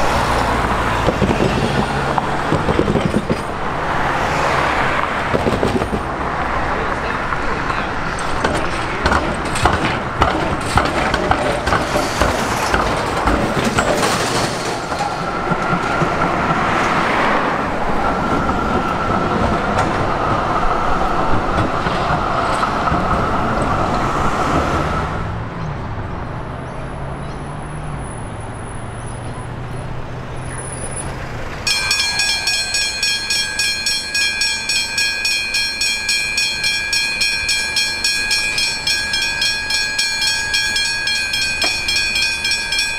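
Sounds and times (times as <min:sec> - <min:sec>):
rail wheels clattering: 0:00.0 - 0:25.2, 0:30.8 - 0:42.9
rail vehicle whine: 0:00.0 - 0:42.9
level crossing warning bells: 0:07.5 - 0:20.4, 0:31.6 - 0:42.9.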